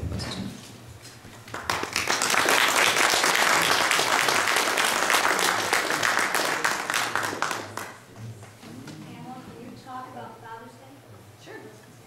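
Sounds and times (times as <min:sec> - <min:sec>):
audience applauding: 0:01.4 - 0:08.1.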